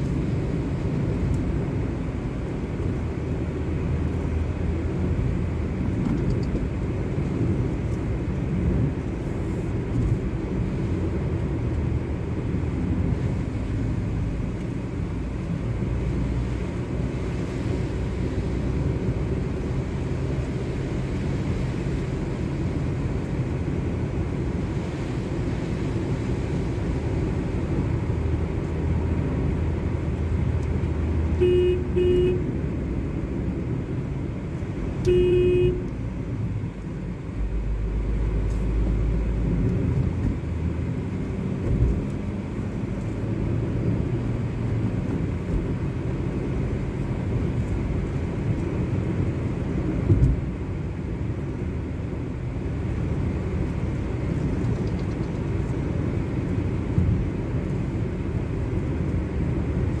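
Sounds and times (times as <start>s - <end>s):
car cabin engine and road noise: 0.0s - 60.0s
car horn tooting: 31.4s - 32.5s, 35.0s - 35.9s.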